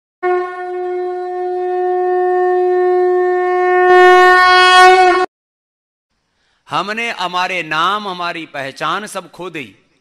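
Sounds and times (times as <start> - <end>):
conch shell blown: 0.2 - 5.3.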